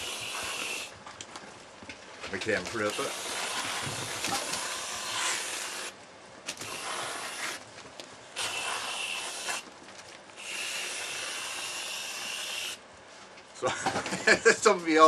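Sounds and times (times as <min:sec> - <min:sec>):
aerosol can spraying whipped cream: 0:00.0 - 0:00.9, 0:02.9 - 0:05.9, 0:08.4 - 0:09.6.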